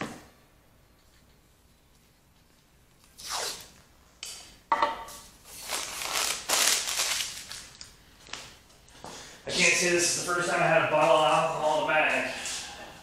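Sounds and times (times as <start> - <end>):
tape ripping off roll: 3.0 - 3.8, 5.5 - 8.5.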